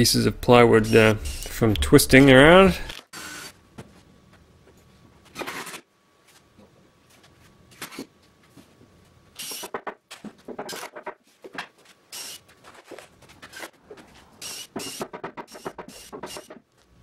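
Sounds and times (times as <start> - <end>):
wood and tools scraping and knocking: 12.6 - 16.7.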